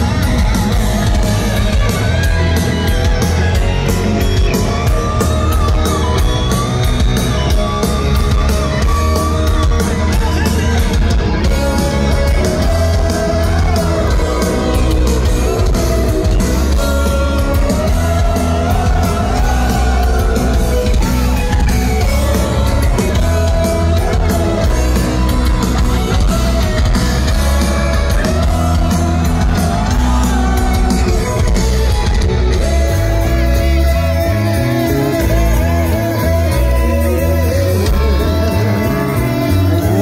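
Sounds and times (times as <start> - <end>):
heavy metal band playing live: 0.0 - 40.0
person singing: 11.5 - 25.4.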